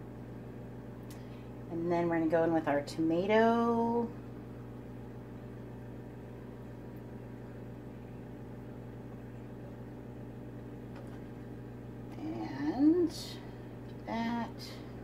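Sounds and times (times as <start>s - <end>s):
low appliance hum: 0.0s - 15.0s.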